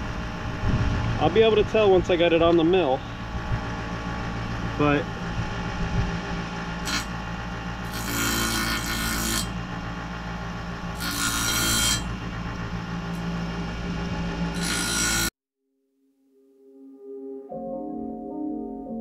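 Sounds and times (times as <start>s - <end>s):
bench grinder motor running: 2.7s - 15.3s
harsh hissing metal grinding: 6.2s - 9.9s, 10.9s - 13.4s.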